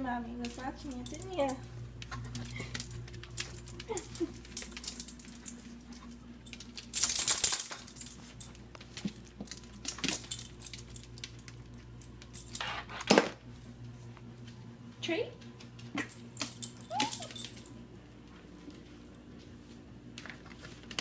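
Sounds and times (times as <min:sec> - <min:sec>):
puppies scuffling on tile floor: 0:00.4 - 0:21.0
rattle: 0:06.5 - 0:08.1.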